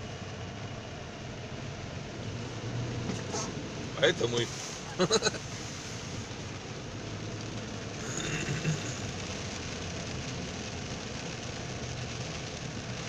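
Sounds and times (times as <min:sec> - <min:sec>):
car engine hum: 0:00.0 - 0:13.0
tyres hissing on wet road: 0:00.0 - 0:13.0.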